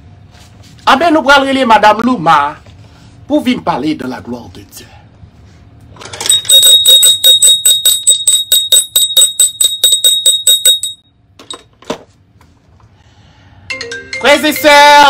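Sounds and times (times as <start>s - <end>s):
small high-pitched bell ringing: 6.3s - 11.1s.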